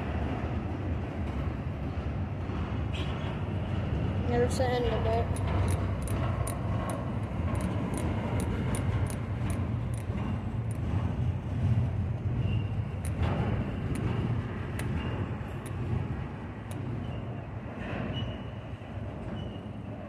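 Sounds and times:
train cars rumbling: 0.0s - 20.0s
metallic wheel clicks: 5.2s - 10.9s, 12.9s - 15.9s
faint wheel squeal: 12.4s - 12.8s, 17.0s - 19.9s.

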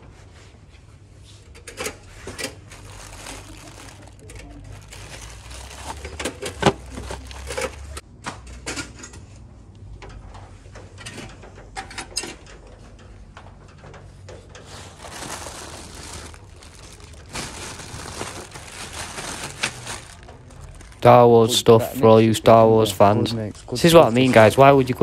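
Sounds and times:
plastic bags rustling: 2.2s - 8.0s, 14.5s - 25.0s.

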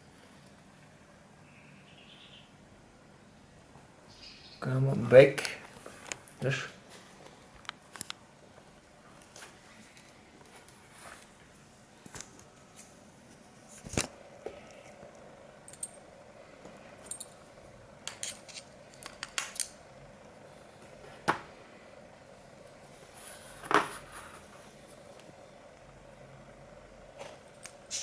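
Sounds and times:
small metal parts clinking: 15.7s - 16.0s, 17.0s - 17.4s, 18.0s - 19.7s.

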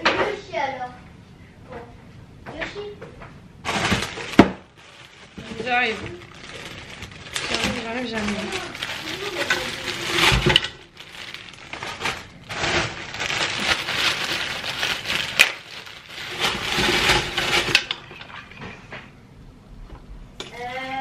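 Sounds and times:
plastic bags crinkling: 3.6s - 18.4s
frozen vegetables clattering into pot: 3.6s - 18.5s.

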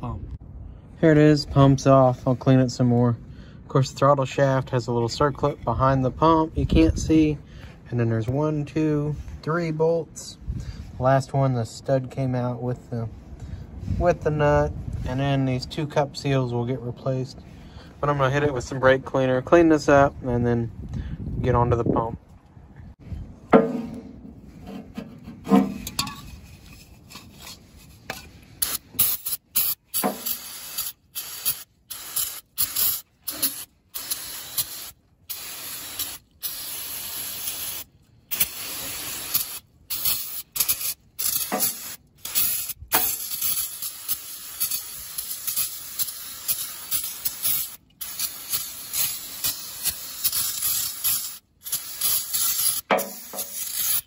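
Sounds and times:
aerosol can spraying in bursts: 28.6s - 54.0s.

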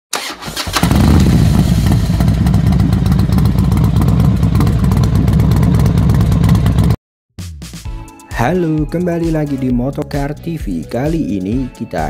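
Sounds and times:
motorcycle engine running: 0.7s - 7.0s.

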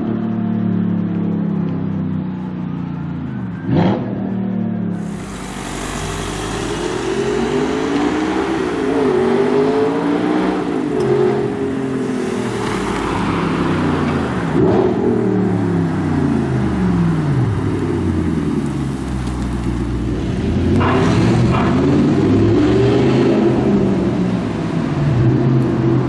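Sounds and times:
car passing by whoosh: 5.0s - 15.4s
sports car engine revving: 5.0s - 19.1s.

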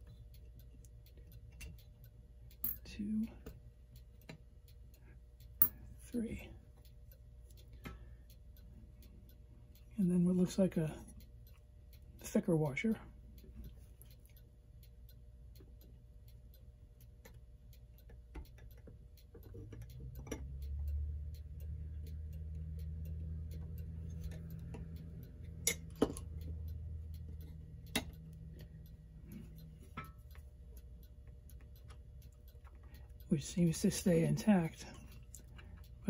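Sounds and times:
mechanical clock ticking: 0.0s - 36.0s
metal clock parts clicking: 0.0s - 36.0s
low hum: 19.7s - 36.0s.

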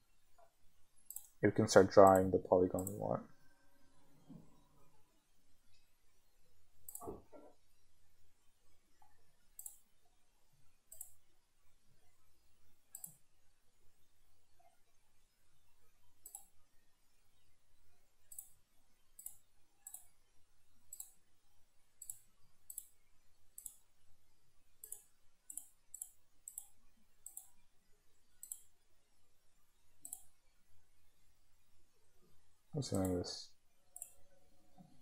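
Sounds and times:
computer mouse clicking: 1.1s - 1.4s, 2.8s - 3.0s, 6.8s - 7.2s, 9.5s - 9.9s, 10.9s - 11.2s, 12.9s - 13.2s, 16.2s - 16.6s, 18.2s - 18.6s, 19.2s - 20.1s, 20.9s - 21.2s, 22.0s - 23.9s, 24.8s - 27.6s, 28.4s - 28.8s, 30.0s - 30.4s, 32.9s - 33.2s, 34.0s - 34.2s.

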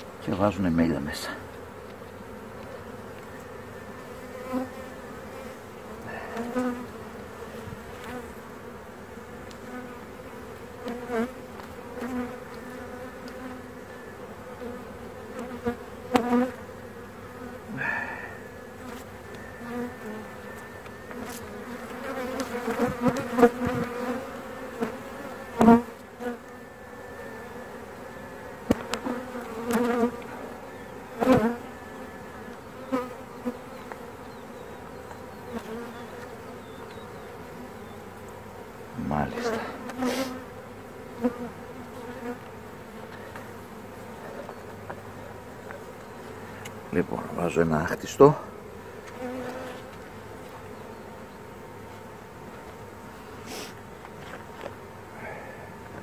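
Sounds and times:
honeybees buzzing: 0.0s - 56.0s
hive tool knocking on wooden frames: 21.2s - 24.2s, 28.6s - 30.1s.

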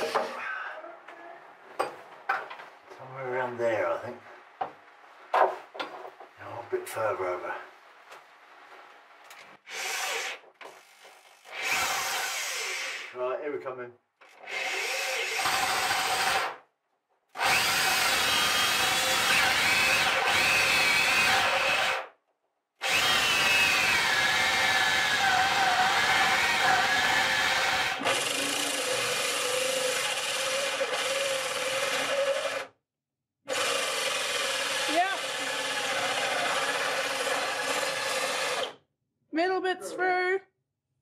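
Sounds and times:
cordless drill with hole saw: 0.0s - 0.4s, 9.6s - 13.2s, 14.2s - 16.6s, 17.4s - 22.1s, 22.8s - 32.8s, 33.5s - 38.8s.

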